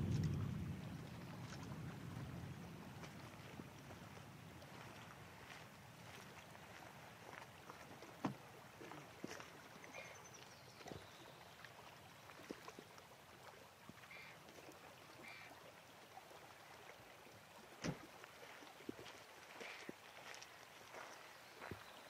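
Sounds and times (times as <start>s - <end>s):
small waves lapping on stones: 0.0s - 22.0s
short bird calls: 14.1s - 14.4s, 15.2s - 15.6s.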